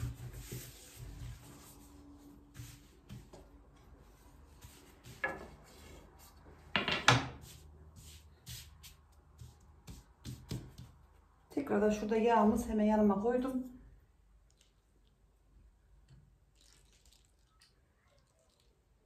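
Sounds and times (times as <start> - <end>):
dough rustling and sliding: 0.0 - 6.7, 7.4 - 11.2.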